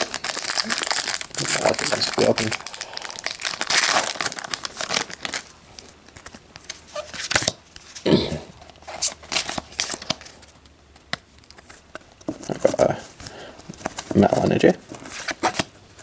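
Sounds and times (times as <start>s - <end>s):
foil pack crinkling and tearing: 0.0s - 7.6s
cards being handled: 4.7s - 8.0s, 8.6s - 16.0s.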